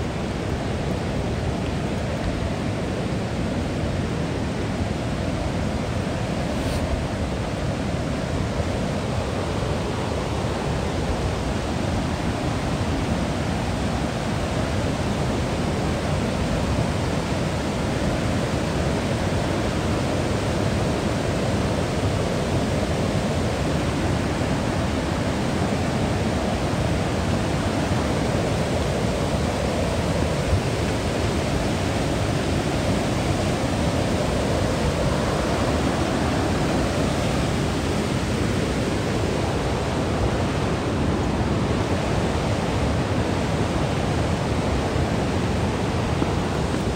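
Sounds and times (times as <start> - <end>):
river water rushing over rapids: 0.0 - 46.9.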